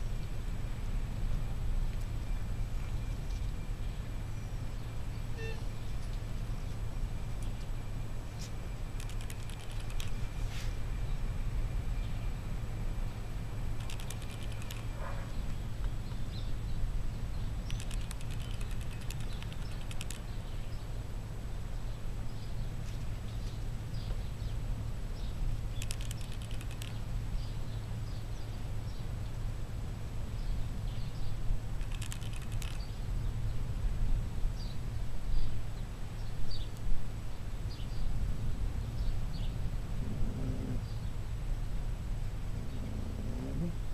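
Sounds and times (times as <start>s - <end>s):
small birds chirping: 8.3s - 10.4s, 13.8s - 21.0s, 25.2s - 29.1s, 30.4s - 33.6s
rapid clicking: 9.0s - 10.2s, 13.8s - 15.0s, 17.6s - 20.4s, 25.7s - 27.0s, 31.8s - 32.9s
wind rumble on microphone: 30.4s - 43.9s.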